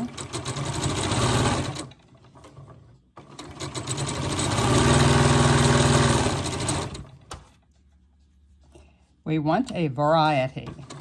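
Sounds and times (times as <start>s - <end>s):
sewing machine stitching: 0.0s - 7.3s.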